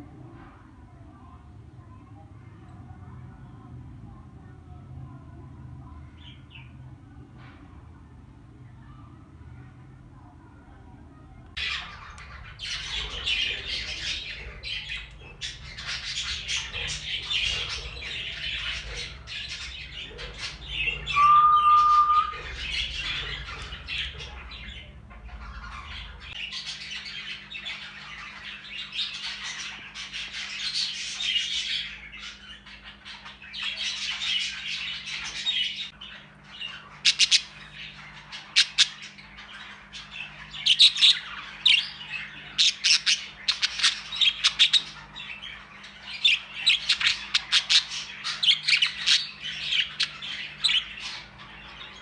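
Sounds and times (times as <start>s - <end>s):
budgerigars chattering and warbling: 11.6s - 52.0s
whistled bird note: 21.1s - 22.7s.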